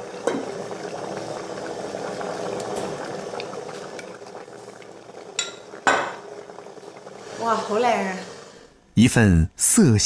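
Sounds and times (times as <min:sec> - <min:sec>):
water boiling: 0:00.0 - 0:08.8.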